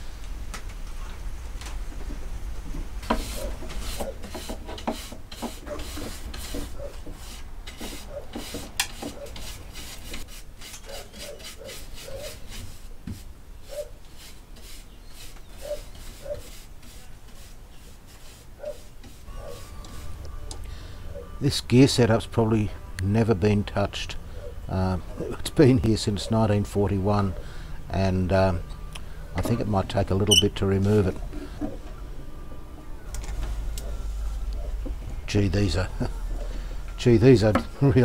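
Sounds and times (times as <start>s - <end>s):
paintbrush scraping wood: 3.0s - 20.3s.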